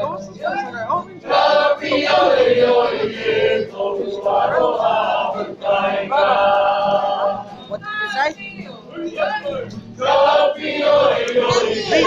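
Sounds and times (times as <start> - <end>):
group chanting in unison: 1.2 - 7.6, 8.9 - 12.0.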